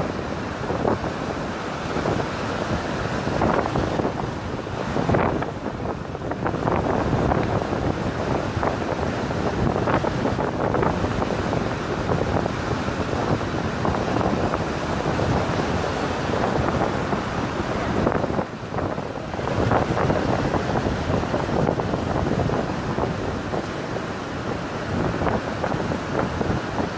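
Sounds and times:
surf washing over pebbles: 0.0 - 26.9
wind buffeting microphone: 0.0 - 26.9.

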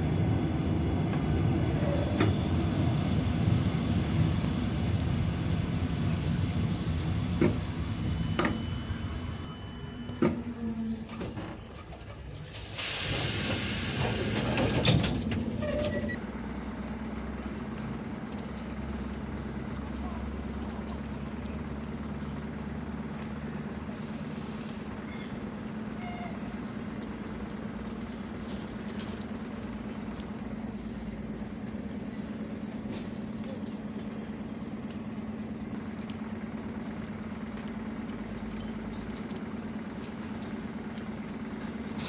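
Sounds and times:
outdoor background noise: 0.0 - 42.0.

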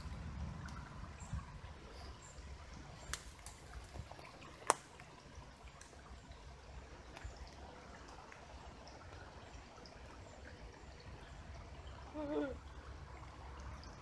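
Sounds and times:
low rumble: 0.0 - 3.0
faint trickling water: 0.0 - 14.0.

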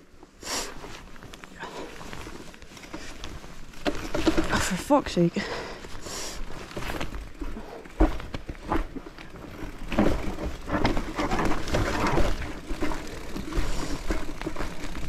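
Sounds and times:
mountain bike rattling on rough trail: 0.0 - 15.0
bike knocks over bumps: 3.7 - 4.9, 6.7 - 15.0.

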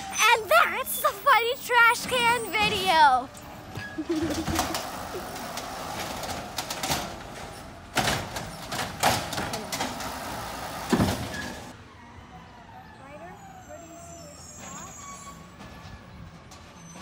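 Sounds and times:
garbage truck engine running: 0.0 - 11.8
trash cart banging and clattering: 0.0 - 11.8.

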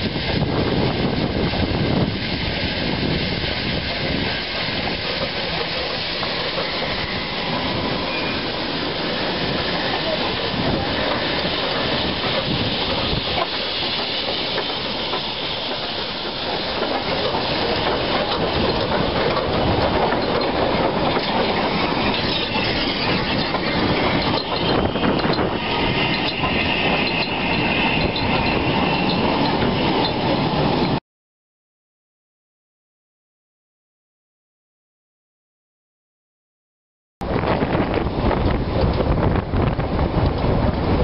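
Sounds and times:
steam hissing: 0.0 - 31.0
train wheels clicking over rail joints: 3.8 - 31.0
locomotive running gear clatter: 4.2 - 8.2, 8.8 - 31.0.

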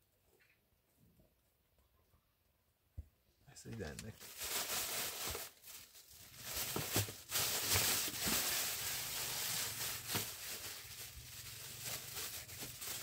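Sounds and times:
plastic bag rustling: 3.7 - 13.0.

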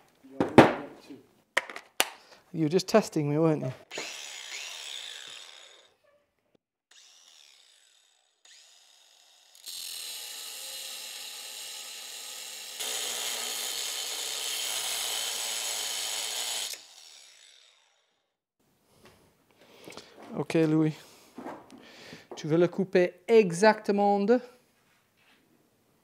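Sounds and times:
angle grinder cutting: 3.9 - 6.0, 6.9 - 18.2.

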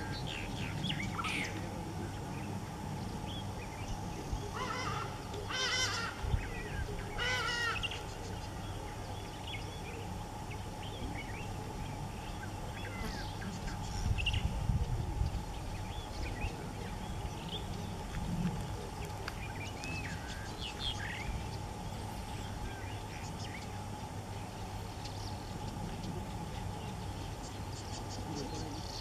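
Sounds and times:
harsh wavering bird calls: 0.0 - 29.0.

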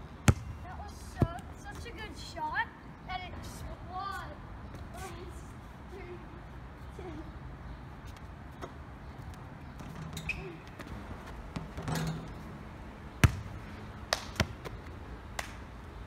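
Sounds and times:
basketball bouncing on court: 0.2 - 0.6, 13.2 - 13.6.

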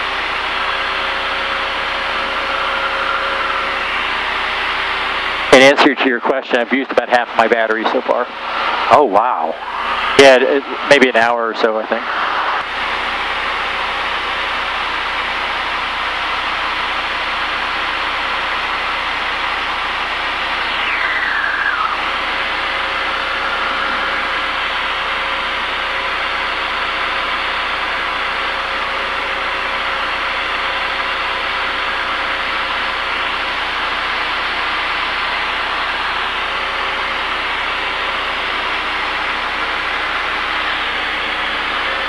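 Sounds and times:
propeller aircraft engine drone: 0.0 - 42.0
whine falling in pitch: 19.6 - 26.6.

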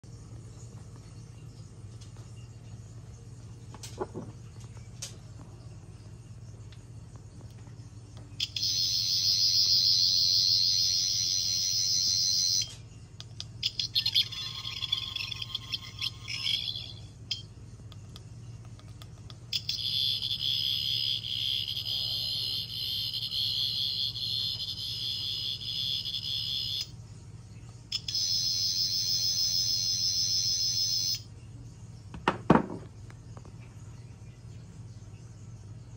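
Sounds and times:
warbling electronic buzz: 8.4 - 12.8, 13.6 - 17.5, 19.6 - 27.0, 27.9 - 31.3
knock on wooden table: 32.1 - 32.9.

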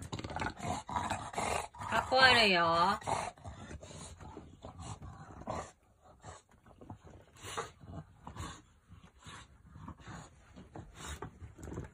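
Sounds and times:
dog breathing noisily: 0.0 - 11.9.

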